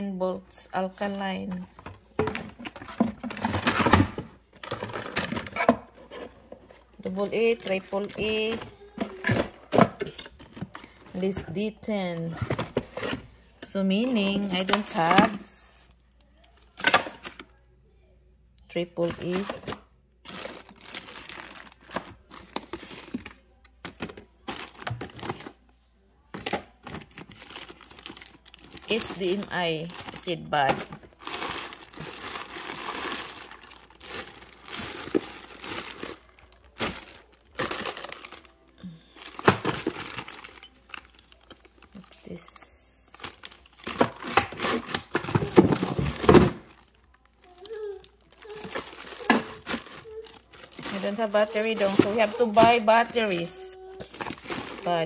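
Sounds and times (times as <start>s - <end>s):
plastic bags rustling: 1.0s - 17.5s, 19.0s - 25.6s, 26.3s - 55.0s
plastic packaging clicks and knocks: 1.6s - 11.4s, 19.0s - 25.6s, 26.3s - 38.5s, 39.2s - 41.9s, 43.2s - 55.0s.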